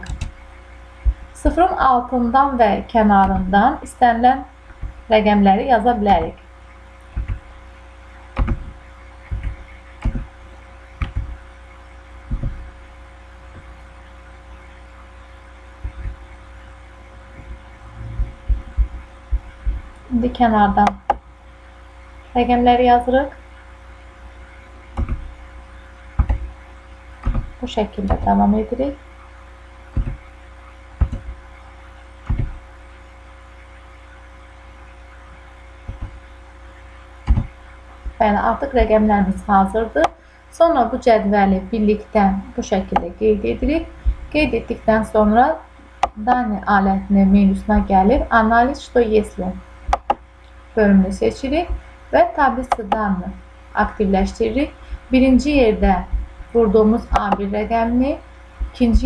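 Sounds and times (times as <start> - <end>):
keyboard keystroke thuds: 0.0 - 0.4, 3.2 - 3.6, 7.1 - 7.5, 8.4 - 10.4, 11.0 - 11.4, 12.3 - 12.7, 15.8 - 16.2, 25.0 - 25.4, 26.2 - 26.5, 27.2 - 28.4, 30.0 - 30.3, 31.0 - 31.4, 32.2 - 32.6, 35.9 - 36.2, 37.3 - 38.2, 49.9 - 50.2
low electrical hum: 0.0 - 59.0
keyboard keystrokes: 11.0 - 11.4, 37.3 - 37.5.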